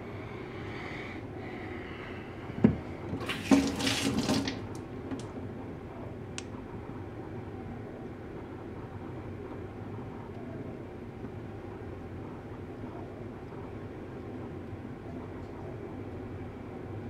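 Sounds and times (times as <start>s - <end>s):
water splashing: 3.2s - 4.7s.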